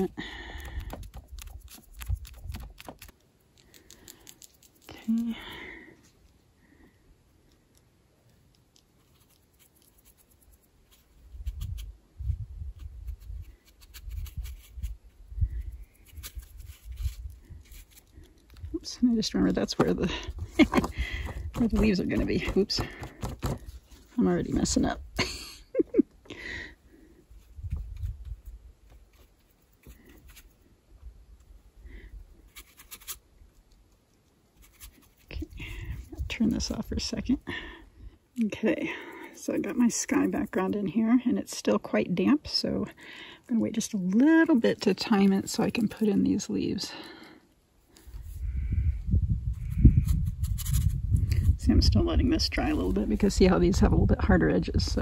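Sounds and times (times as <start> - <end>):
brush ticking on paper: 0.9 - 3.1, 7.8 - 11.9
brush scratching on paper: 9.0 - 11.9, 34.6 - 35.5.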